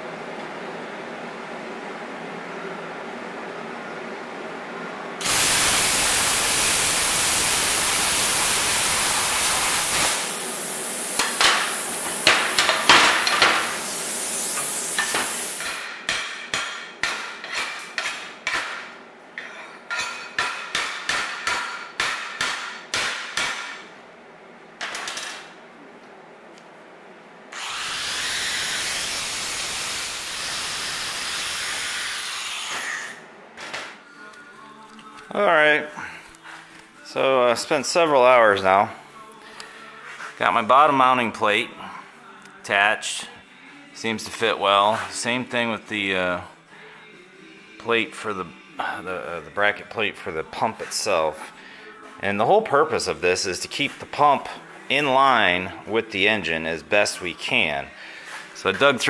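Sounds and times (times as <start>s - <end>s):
plasma cutter hissing: 5.2s - 15.9s, 27.6s - 33.2s
hammer strikes on metal plate: 11.2s - 13.7s, 15.0s - 18.9s, 20.0s - 23.8s
angle grinder running: 27.6s - 33.1s.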